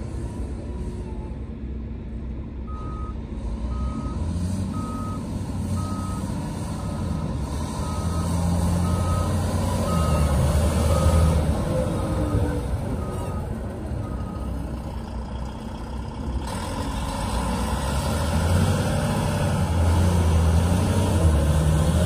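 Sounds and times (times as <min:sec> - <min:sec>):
reversing alarm beeps: 0:02.7 - 0:05.2, 0:05.8 - 0:14.6
truck diesel engine revving: 0:02.7 - 0:22.0.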